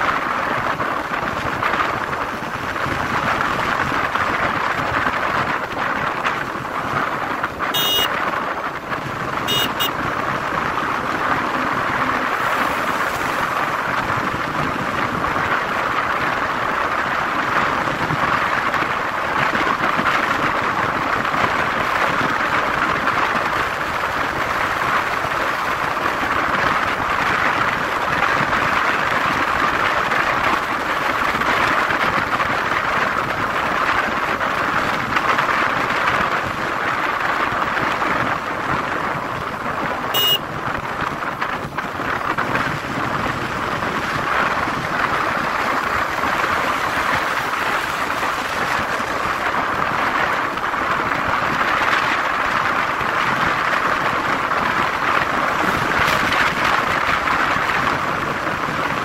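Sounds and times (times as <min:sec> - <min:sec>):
wind and road noise: 0:00.0 - 0:59.0.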